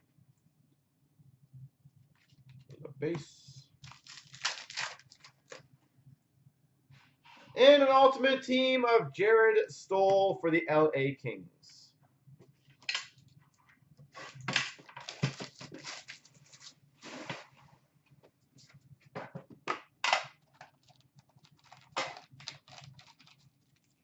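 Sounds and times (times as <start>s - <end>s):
cards clicking and rustling: 20.1s - 24.0s.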